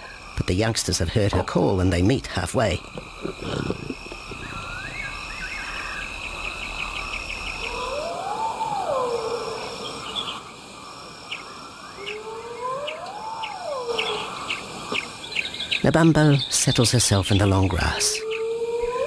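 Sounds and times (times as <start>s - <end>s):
crickets and insects trilling: 0.0s - 19.0s
drawn-out rising falling call: 11.8s - 15.1s.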